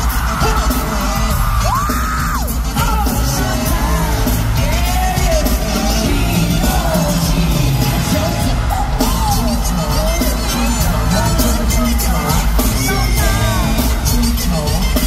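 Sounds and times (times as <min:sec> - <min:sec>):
fans screaming and yelling: 0:00.0 - 0:15.0
pop concert music with singing: 0:00.0 - 0:15.0.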